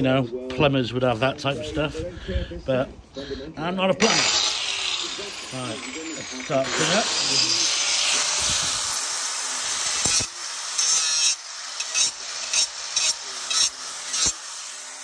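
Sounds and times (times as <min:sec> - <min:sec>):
angle grinder grinding plastic: 0:04.0 - 0:15.0.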